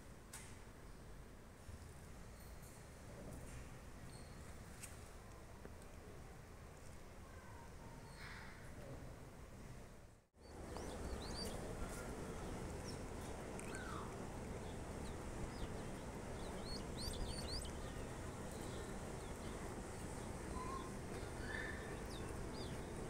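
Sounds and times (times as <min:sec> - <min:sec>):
steady background hiss: 0:08.7 - 0:23.0
small birds chirping: 0:10.4 - 0:23.0.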